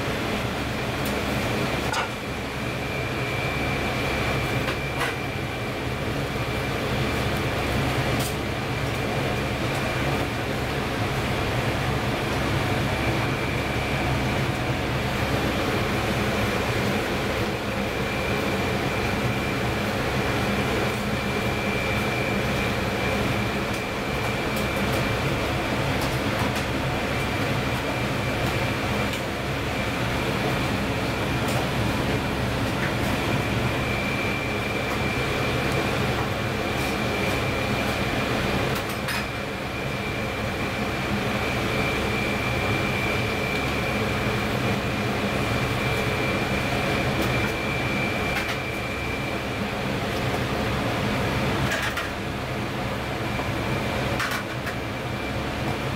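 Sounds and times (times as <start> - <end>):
mechanical hum and hiss: 0.0 - 55.9
faint high whine: 0.4 - 6.9, 27.9 - 49.8.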